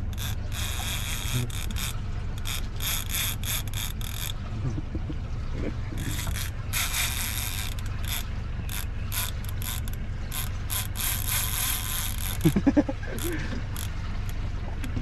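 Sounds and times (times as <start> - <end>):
fishing reel ratcheting: 0.0 - 4.5, 6.0 - 14.4
steady low rumble: 0.0 - 15.0
man's voice: 4.5 - 6.0.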